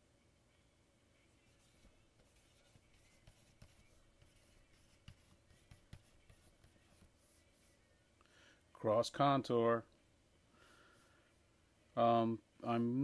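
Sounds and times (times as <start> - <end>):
stylus tapping and scratching screen: 1.4 - 7.9.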